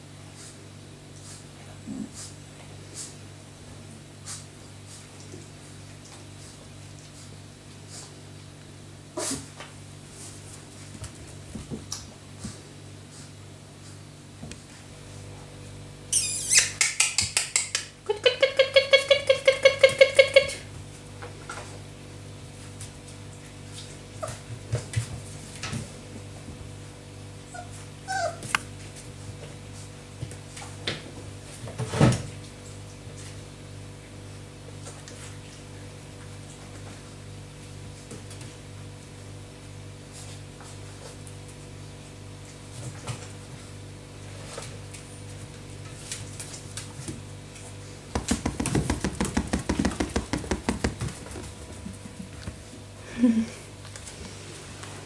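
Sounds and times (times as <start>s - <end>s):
puppy whimpering and yipping: 16.2s - 17.0s, 27.5s - 28.5s
puppy claws pattering on floor: 16.2s - 17.9s, 44.4s - 52.8s
small knocks and bumps: 48.1s - 52.6s.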